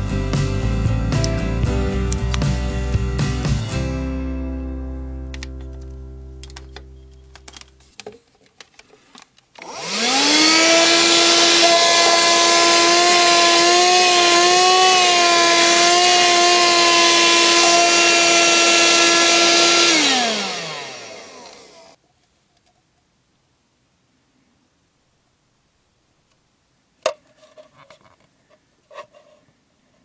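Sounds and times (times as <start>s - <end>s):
handheld vacuum whining: 9.6s - 22.0s.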